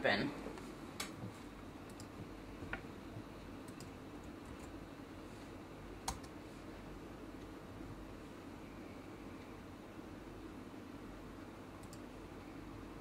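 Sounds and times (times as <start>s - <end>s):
steady low hum: 0.0s - 13.0s
keyboard and mouse clicks: 1.9s - 2.1s, 3.6s - 4.7s, 6.0s - 6.4s, 11.8s - 12.0s.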